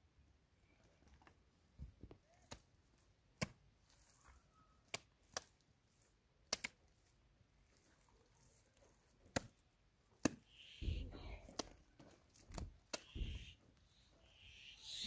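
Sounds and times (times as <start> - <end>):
wet mud slapped onto wall: 12.4 - 13.3.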